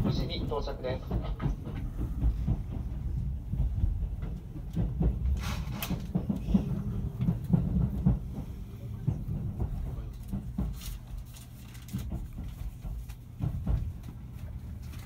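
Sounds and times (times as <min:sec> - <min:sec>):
wheel clicks over rail joints: 0:00.0 - 0:08.4
train running rumble: 0:00.0 - 0:15.0.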